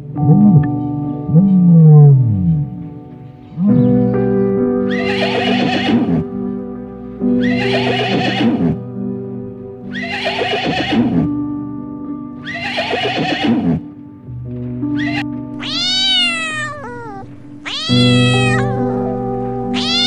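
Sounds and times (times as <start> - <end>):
background music: 0.0 - 20.0
horse whinnying: 4.9 - 6.3, 7.4 - 8.8, 9.9 - 11.3, 12.4 - 13.8, 15.0 - 18.8, 19.7 - 20.0.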